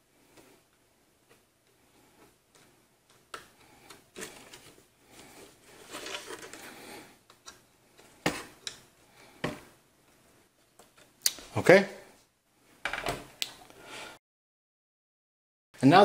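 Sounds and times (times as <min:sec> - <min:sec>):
scraping and rustling: 0:04.1 - 0:07.2.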